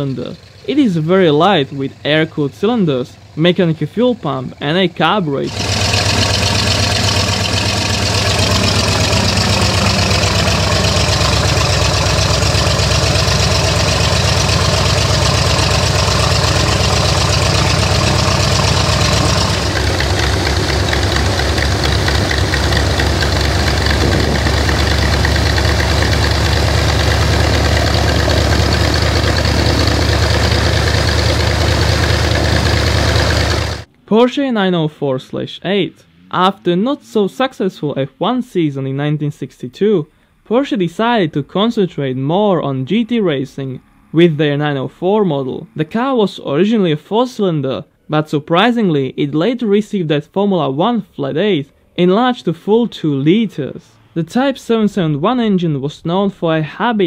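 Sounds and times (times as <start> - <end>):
aircraft engine idling: 0.0 - 33.9.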